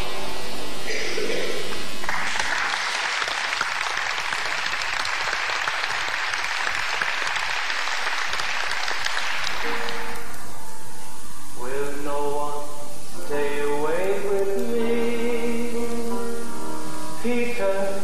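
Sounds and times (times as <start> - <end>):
audience applauding: 1.6 - 10.4
music with held notes: 9.6 - 18.0.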